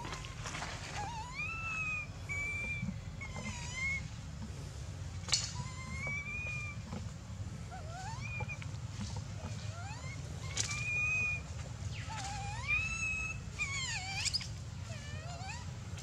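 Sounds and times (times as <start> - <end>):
baby monkey crying: 0.0 - 4.2, 5.3 - 6.9, 7.7 - 8.6, 9.4 - 16.0.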